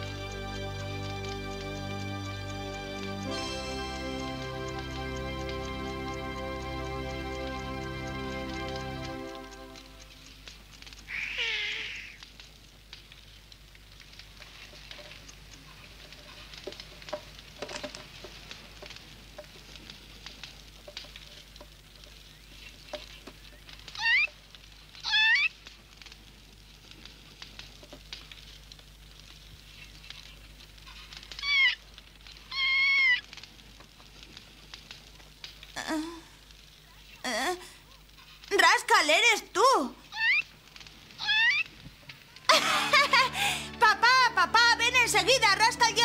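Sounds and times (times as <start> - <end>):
faint crackling: 0.0 - 46.0
cartoon raccoon squeaky chirping: 24.0 - 24.3, 31.4 - 31.8, 40.1 - 40.5, 41.2 - 41.7.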